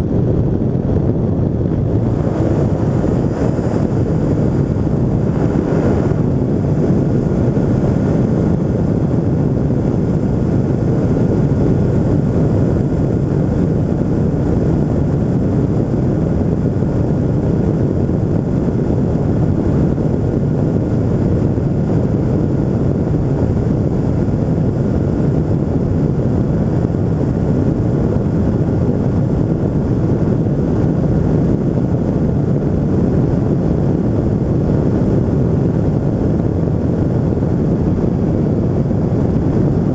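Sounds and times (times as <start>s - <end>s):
airflow rushing: 0.0s - 20.1s, 20.7s - 39.9s
two-stroke engine and propeller drone: 0.0s - 39.9s.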